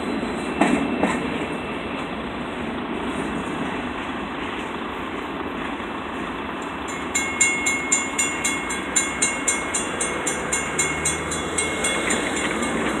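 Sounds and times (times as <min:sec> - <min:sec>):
railroad crossing bell ringing: 0:06.8 - 0:13.0
freight boxcars rumbling past: 0:07.2 - 0:13.0.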